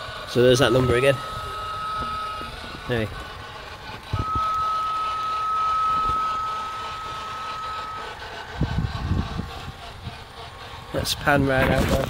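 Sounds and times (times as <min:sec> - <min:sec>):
low rumbling: 0:00.0 - 0:12.0
high-pitched electronic tone: 0:00.3 - 0:03.3, 0:03.9 - 0:09.7.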